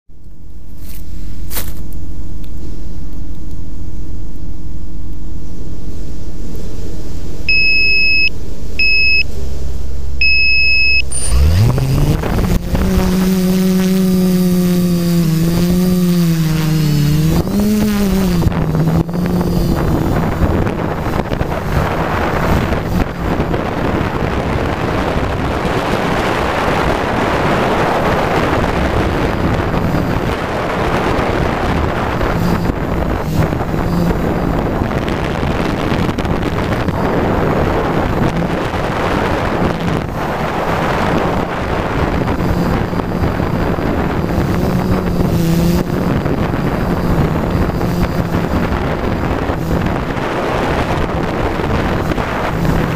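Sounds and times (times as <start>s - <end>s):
wind on microphone: 0.7s - 52.9s
low rumble: 2.0s - 24.6s
short electronic beeps: 7.5s - 9.3s, 10.2s - 11.9s
drone motors whining: 7.5s - 23.7s, 31.8s - 35.9s, 39.7s - 52.9s.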